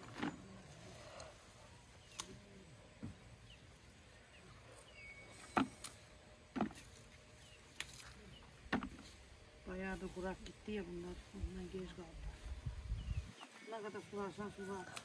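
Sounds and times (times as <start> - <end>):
faint sharp snaps and clicks: 2.1 - 2.5.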